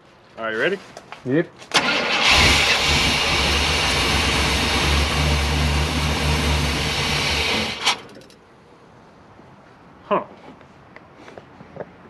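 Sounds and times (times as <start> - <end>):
car engine running: 2.2 - 8.3.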